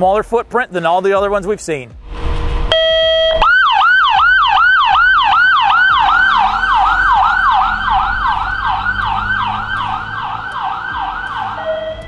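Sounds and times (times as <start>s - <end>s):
ambulance siren yelp: 2.7s - 12.0s.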